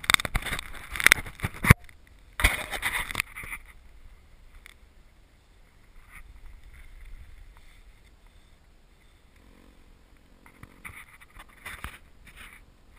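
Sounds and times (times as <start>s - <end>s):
low wind rumble on microphone: 0.0s - 10.0s
faint steady hum: 0.0s - 12.9s.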